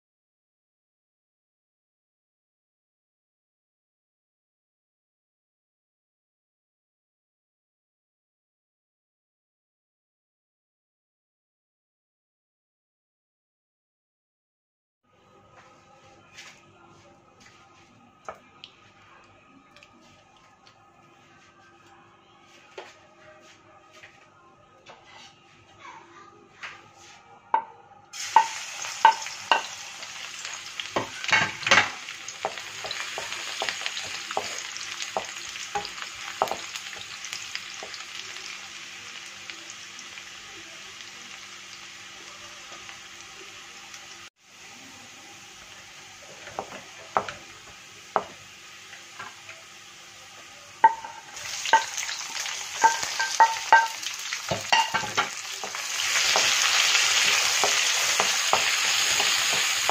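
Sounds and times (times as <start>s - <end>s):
garlic sizzling in oil: 28.2s - 59.9s
wooden spoon scraping wok: 50.8s - 59.9s.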